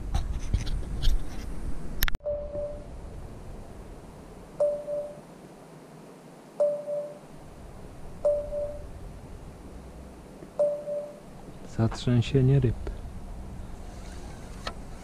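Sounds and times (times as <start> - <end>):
short electronic beeps: 2.2 - 2.9, 4.6 - 5.2, 6.6 - 7.2, 8.2 - 8.9, 10.6 - 11.2.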